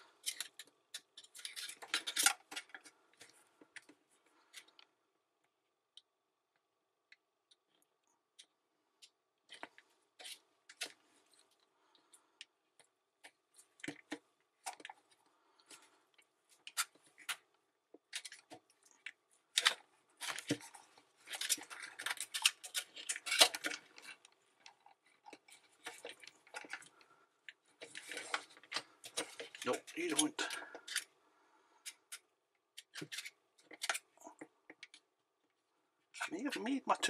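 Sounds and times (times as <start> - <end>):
scraping and rustling: 18.1 - 31.1.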